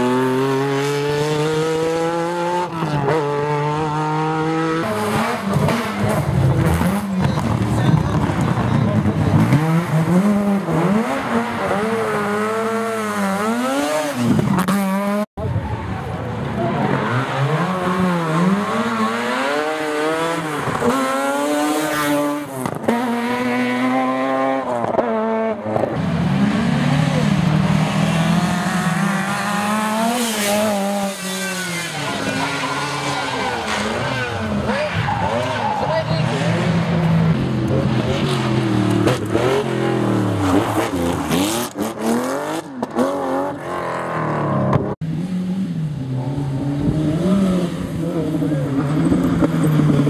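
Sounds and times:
rally car engine revving: 0.0s - 50.0s.

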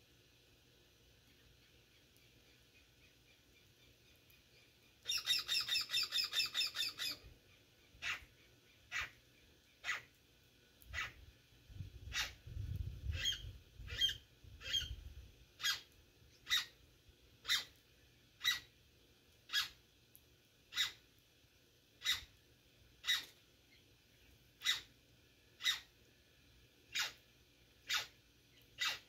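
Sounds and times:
bird chattering calls: 5.0s - 7.2s.

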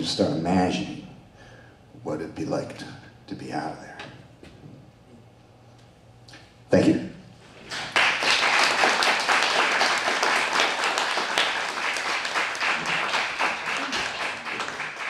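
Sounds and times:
audience applauding: 7.7s - 15.0s.

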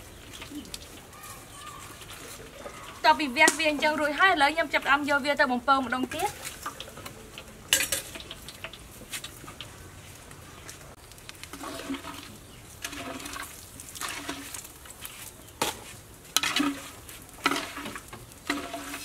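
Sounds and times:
oil frying in a wok: 0.0s - 19.0s
skimmer clinking against wok: 6.2s - 9.6s.

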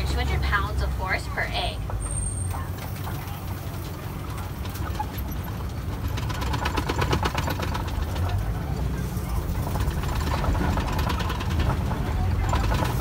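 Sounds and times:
truck engine rumbling: 0.0s - 13.0s
rapid clicking rattles: 2.7s - 13.0s.

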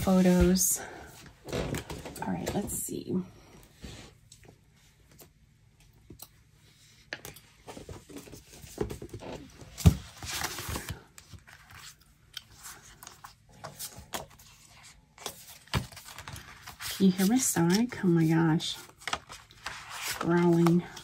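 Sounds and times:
paper rustling: 9.8s - 21.0s.

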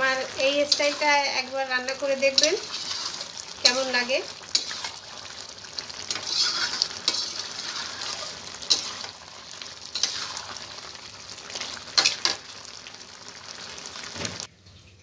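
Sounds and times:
curry sizzling: 0.0s - 14.5s
metal ladle scraping a pan: 0.4s - 10.9s, 11.5s - 12.4s.

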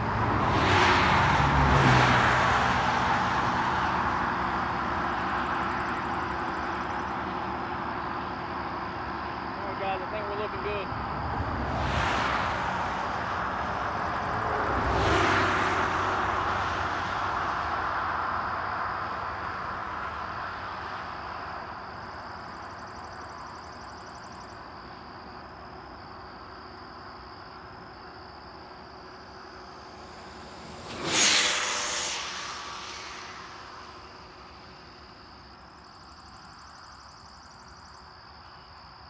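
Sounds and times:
car passing: 0.0s - 39.0s
radio-controlled truck whine and whoosh: 28.4s - 37.8s.

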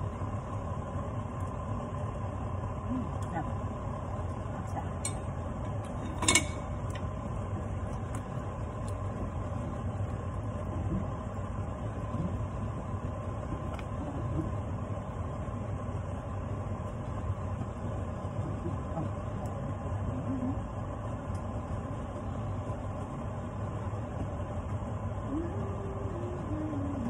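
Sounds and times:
low kitchen hum: 0.0s - 27.0s
metal spoon clinking on cookware: 5.8s - 7.0s.

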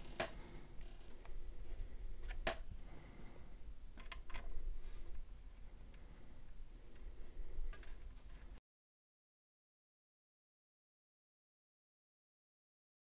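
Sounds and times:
light rustling of cables: 0.0s - 8.6s.

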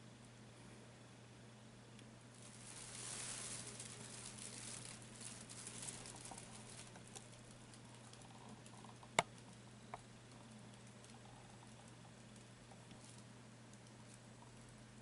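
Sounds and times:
fabric tunnel rustling: 2.3s - 8.2s.

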